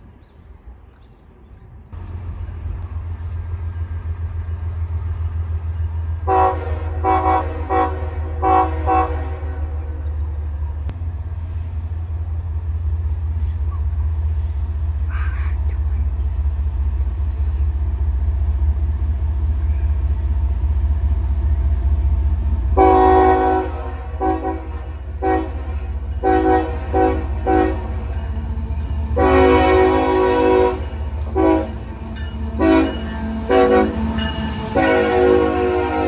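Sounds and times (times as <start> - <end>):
locomotive air horn: 6.2 - 10.1, 22.7 - 28.2, 29.1 - 36.0.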